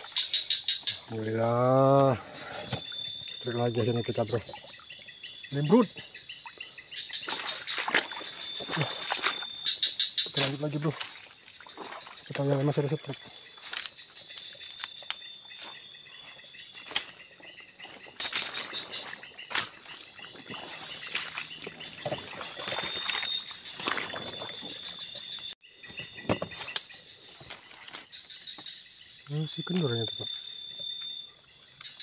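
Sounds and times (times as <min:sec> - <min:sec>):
insect chorus trilling: 0:00.0 - 0:32.0
footsteps through undergrowth: 0:07.1 - 0:12.5, 0:13.4 - 0:25.0, 0:27.4 - 0:28.2.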